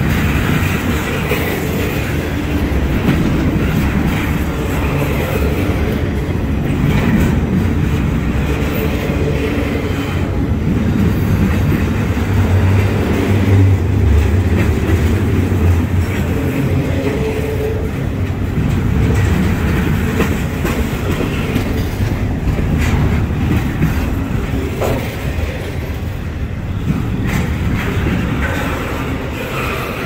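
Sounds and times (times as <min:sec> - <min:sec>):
freight train wheels rumbling: 0:00.0 - 0:30.0
wheels clacking over rail joints: 0:00.0 - 0:30.0.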